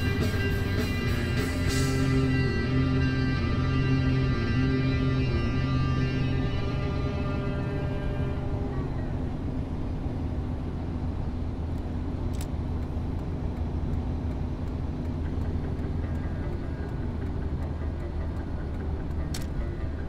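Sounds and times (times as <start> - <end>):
car engine and tyre rumble: 0.0 - 20.0
sharp click: 12.3 - 12.6, 19.1 - 19.6.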